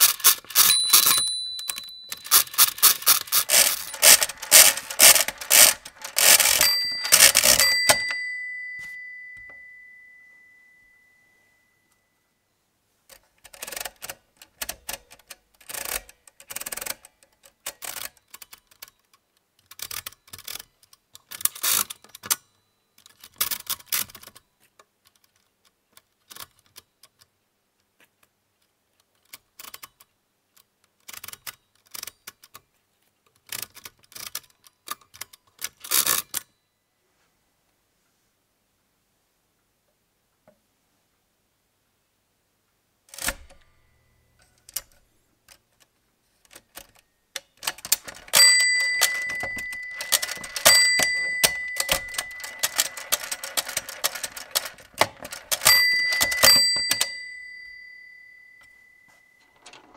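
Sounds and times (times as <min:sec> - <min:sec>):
mechanical calculator clicking: 0:00.0 - 0:08.8, 0:13.4 - 0:19.0, 0:46.5 - 0:58.2
ringing tone: 0:00.6 - 0:02.6, 0:03.5 - 0:12.2, 0:48.4 - 0:53.4, 0:55.6 - 0:59.7.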